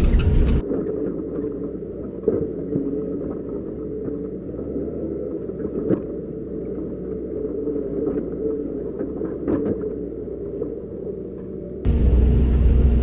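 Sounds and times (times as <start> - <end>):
excavator diesel engine running: 11.9 - 13.0.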